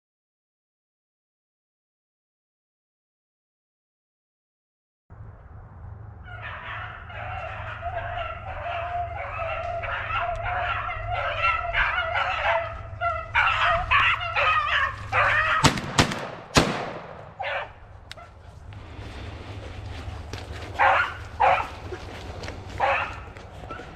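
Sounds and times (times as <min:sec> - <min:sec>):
steady low rumble: 0:05.1 - 0:23.9
hounds baying: 0:06.2 - 0:15.7, 0:17.4 - 0:18.6, 0:20.1 - 0:23.9
sharp cracks: 0:15.4 - 0:17.4.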